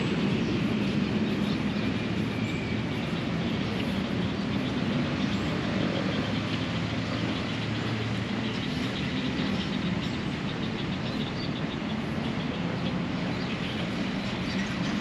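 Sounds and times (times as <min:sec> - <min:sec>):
low rumbling outdoor background noise: 0:00.0 - 0:15.0.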